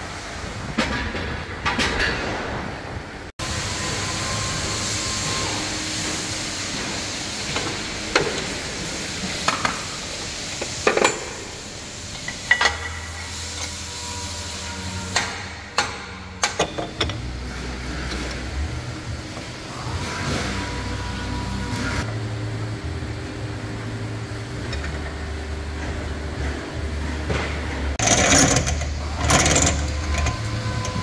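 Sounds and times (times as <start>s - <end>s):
workshop hiss: 0.0s - 1.8s, 2.4s - 31.0s
metal clanks and clicks: 15.1s - 17.3s, 27.3s - 31.0s.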